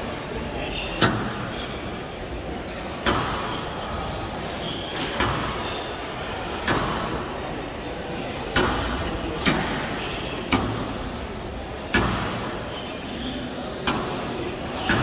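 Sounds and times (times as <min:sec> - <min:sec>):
audience murmur: 0:00.0 - 0:15.0.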